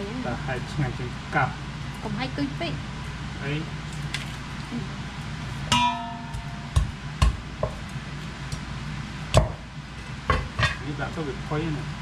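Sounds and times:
cleaver clank with metallic ring: 5.7s - 6.8s.

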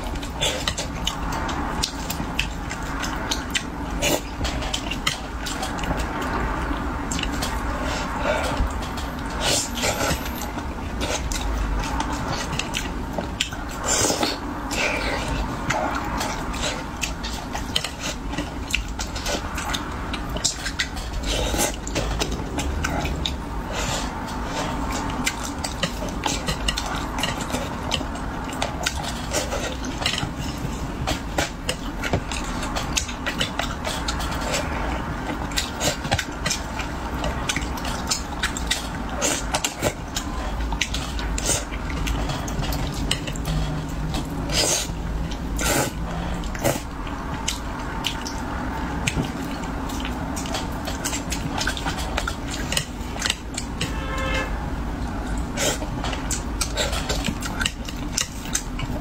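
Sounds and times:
chewing and sucking: 0.0s - 54.0s, 54.8s - 59.0s
wet mouth clicks and smacks: 31.7s - 53.8s.

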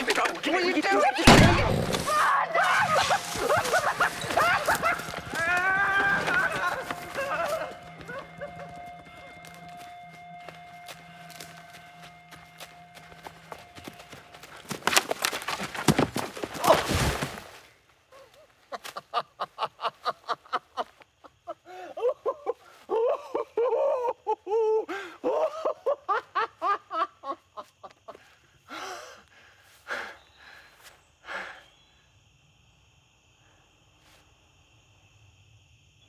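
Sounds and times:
loud rustling rush: 2.0s - 8.7s
man panting and gasping: 28.1s - 31.7s.

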